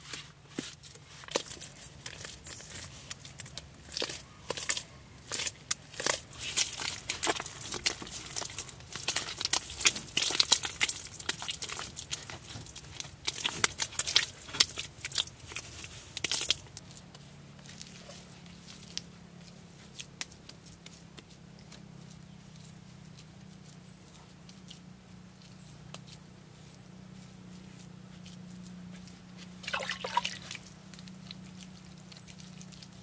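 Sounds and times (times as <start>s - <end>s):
hands slapping wet mortar: 0.1s - 16.8s, 29.6s - 31.1s.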